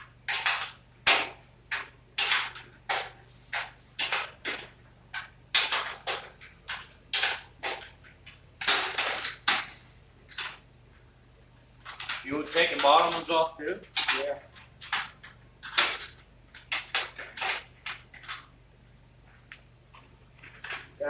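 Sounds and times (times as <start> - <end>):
hand tools clanking on metal: 11.8 - 18.5.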